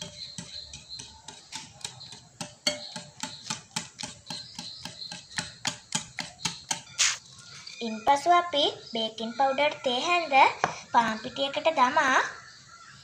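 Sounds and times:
wire whisk clicking against bowl: 0:00.0 - 0:07.0.

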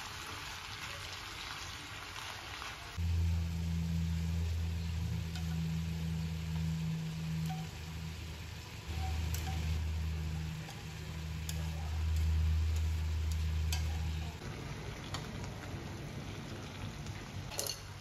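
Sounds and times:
food sizzling in a frying pan: 0:00.0 - 0:18.0
low steady hum: 0:03.0 - 0:17.8.

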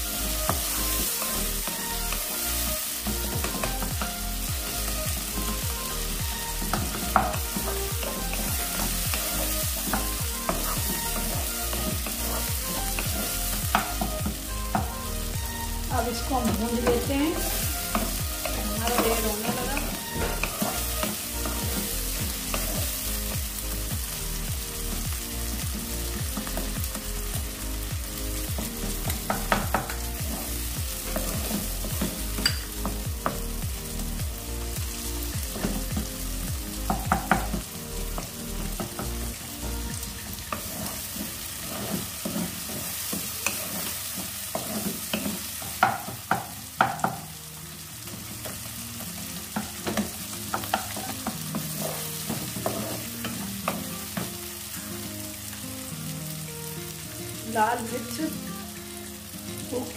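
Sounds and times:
food sizzling in oil: 0:00.0 - 0:59.9
spatula scraping pan: 0:00.2 - 0:23.2, 0:40.1 - 0:47.2, 0:49.6 - 0:54.2
spatula knocking pan: 0:06.7 - 0:15.0, 0:28.6 - 0:33.4, 0:36.9 - 0:37.7, 0:40.2 - 0:47.3, 0:49.5 - 0:54.3.

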